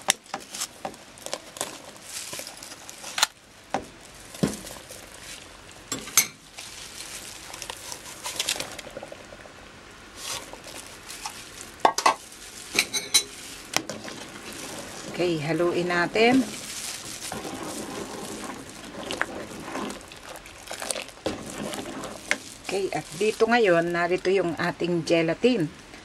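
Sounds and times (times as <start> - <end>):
steady hiss: 0.0 - 26.0
sugar poured into a pot: 10.2 - 23.8.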